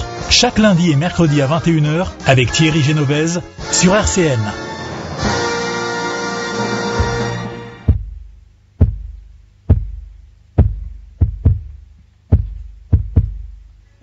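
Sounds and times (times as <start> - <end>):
held musical chord: 2.4 - 7.9
deep heartbeat-like thumps: 7.0 - 13.7.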